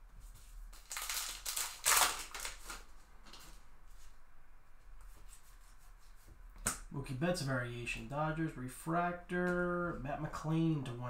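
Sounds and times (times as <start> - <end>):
wrapper being torn open: 0.8 - 2.9.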